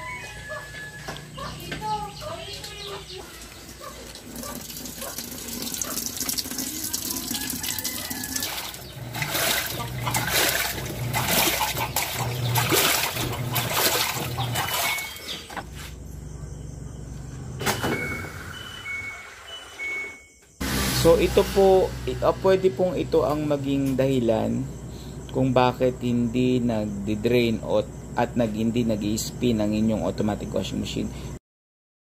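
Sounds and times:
washing machine motor pulsing: 0.1 - 15.6, 17.1 - 31.2
water swishing and sloshing: 3.1 - 15.5
short electronic beeps: 17.6 - 21.0.

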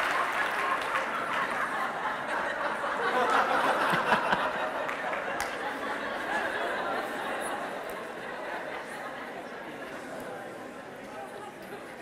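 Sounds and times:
scattered claps: 0.0 - 1.7, 4.8 - 5.8
audience laughing: 0.0 - 9.2.

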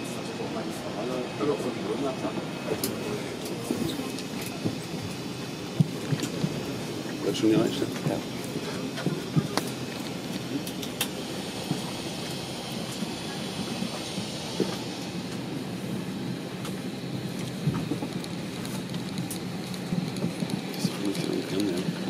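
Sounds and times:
aircraft cabin air rush: 0.0 - 22.0.

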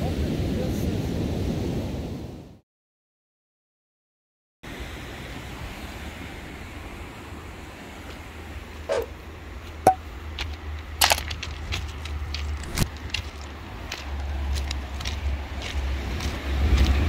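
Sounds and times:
wind rumble on microphone: 4.7 - 17.0
footsteps crunching on stones: 9.6 - 17.0.

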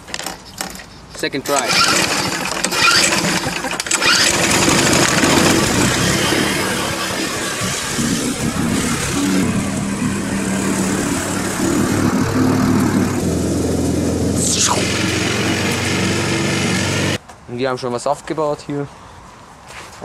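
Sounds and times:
recoil starter pull: 1.5 - 13.2
lawn mower engine running: 1.5 - 17.2.

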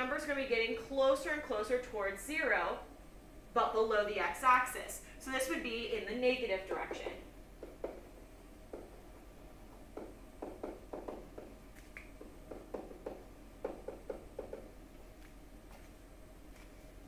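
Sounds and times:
stylus tapping on tablet screen: 6.9 - 9.0, 9.9 - 14.8.

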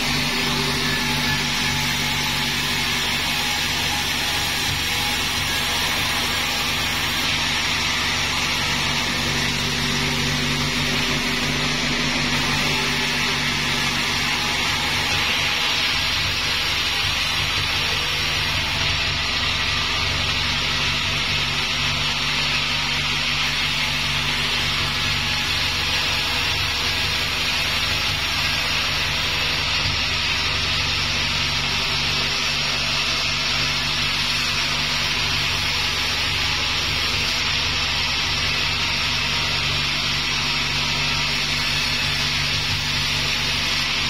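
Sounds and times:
machine low hum: 0.0 - 22.1
saw cutting timber: 0.0 - 44.0.

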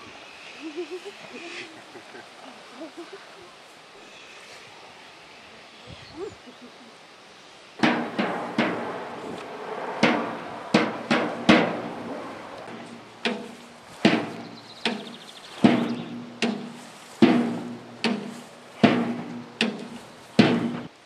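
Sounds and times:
sharp ringing knocks: 7.8 - 20.9.

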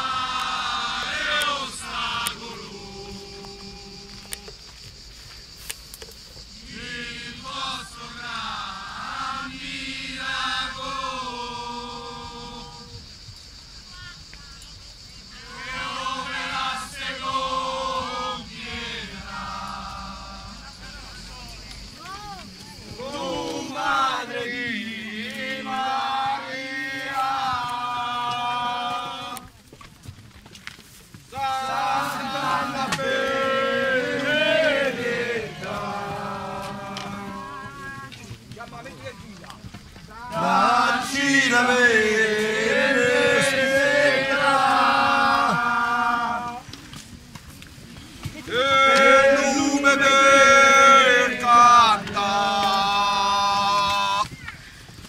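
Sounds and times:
voices chanting a hymn: 0.0 - 29.8, 31.1 - 55.0.

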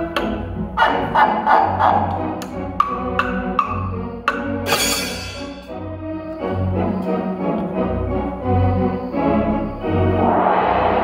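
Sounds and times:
storm sound effect hiss: 9.9 - 11.0.

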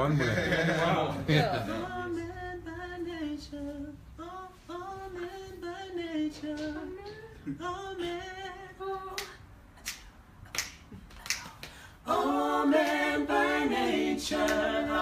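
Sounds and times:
finger snaps: 9.2 - 11.8.

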